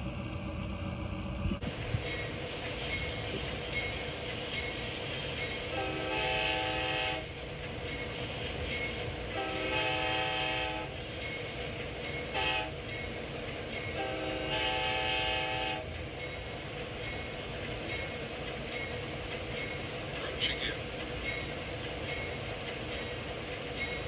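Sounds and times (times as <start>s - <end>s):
moving train rumble: 0.0s - 24.0s
locomotive air horn blasts: 5.7s - 7.3s, 9.3s - 11.0s, 12.3s - 12.8s, 14.0s - 15.9s.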